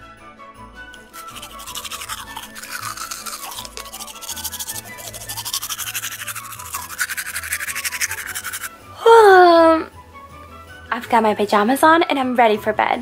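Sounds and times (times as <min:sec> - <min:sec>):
light background music: 0:00.0 - 0:13.0
toothbrush scrubbing: 0:00.9 - 0:08.8.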